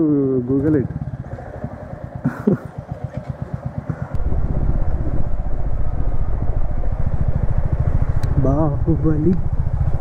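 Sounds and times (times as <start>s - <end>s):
motorcycle engine thumping: 0.4s - 8.4s.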